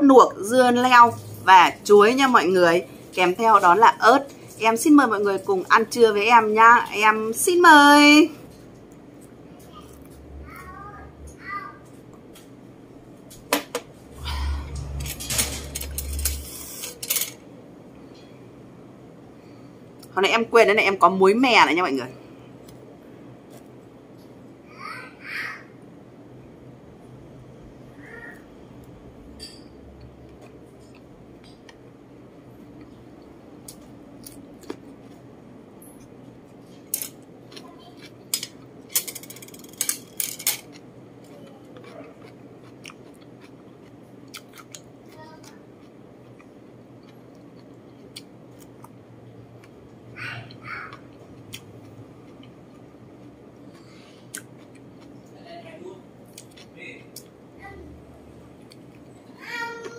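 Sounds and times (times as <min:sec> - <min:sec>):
low steady hum: 0:00.0 - 0:24.9
chewing: 0:37.5 - 0:38.8, 0:40.6 - 0:49.0, 0:50.5 - 0:55.2.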